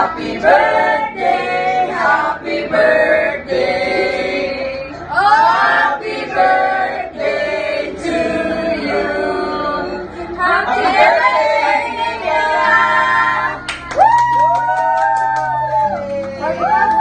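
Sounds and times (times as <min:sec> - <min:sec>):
group singing together: 0:00.0 - 0:13.9.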